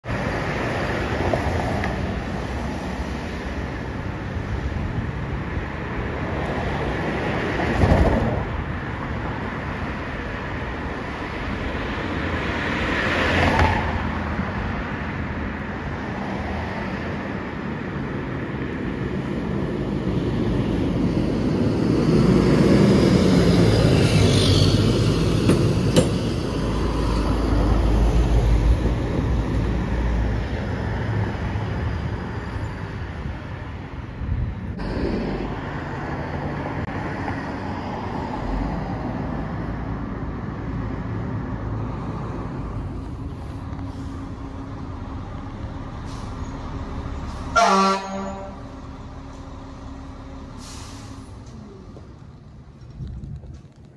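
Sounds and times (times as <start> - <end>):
cars passing: 0.0 - 53.9
diesel truck engine rumbling: 16.8 - 53.9.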